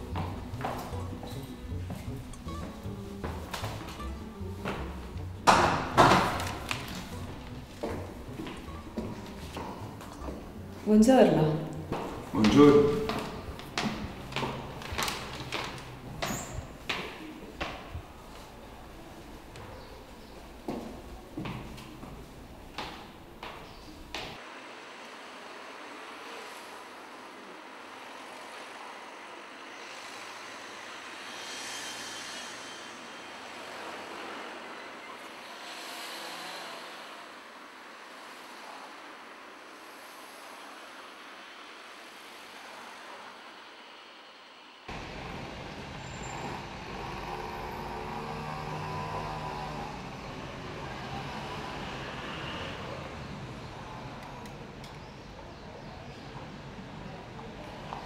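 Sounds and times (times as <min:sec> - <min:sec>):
street traffic noise: 0:00.0 - 0:58.0
passing vehicles hissing: 0:11.8 - 0:58.0.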